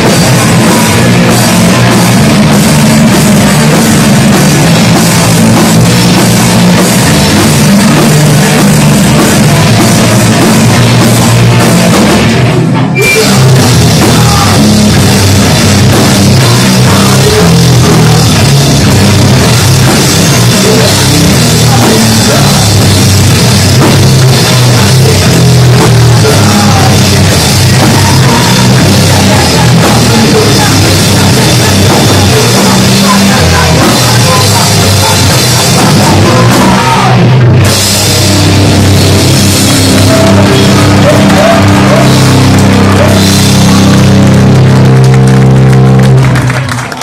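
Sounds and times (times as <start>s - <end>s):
punk band playing live: 0.0s - 47.0s.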